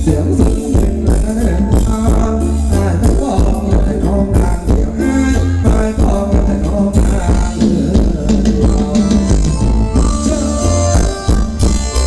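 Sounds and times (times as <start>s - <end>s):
bass and drum beat: 0.0s - 12.0s
live band music through pa: 0.0s - 12.0s
person singing: 0.0s - 12.0s.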